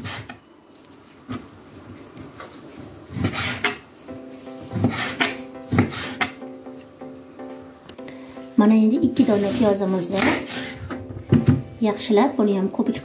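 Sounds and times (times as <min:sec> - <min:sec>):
soft background music: 0:03.9 - 0:13.0
knife cutting meat on board: 0:10.2 - 0:10.9.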